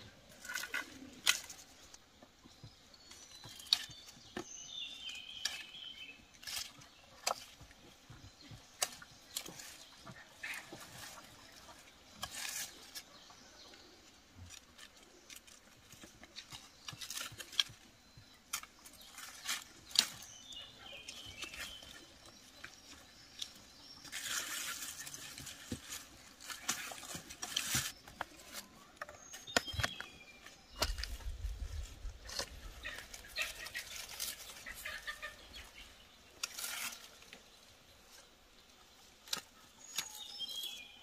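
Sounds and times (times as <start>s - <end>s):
leaves rustling: 18.5s - 41.0s.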